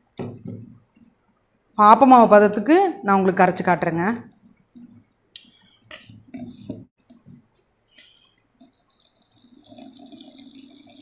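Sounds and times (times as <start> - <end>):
liquid trickling pour: 8.6 - 11.0.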